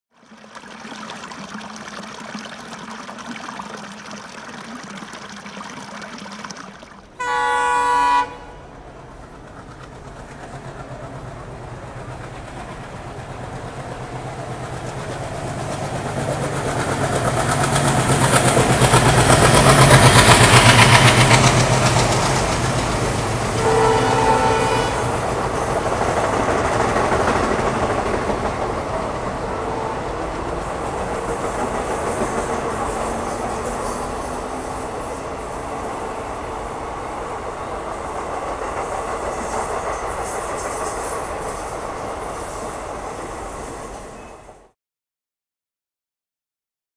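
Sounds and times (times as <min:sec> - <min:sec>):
locomotive air horn: 0:07.2 - 0:08.9, 0:23.4 - 0:25.7, 0:29.4 - 0:30.3
train wheels clattering on rails: 0:08.8 - 0:44.2.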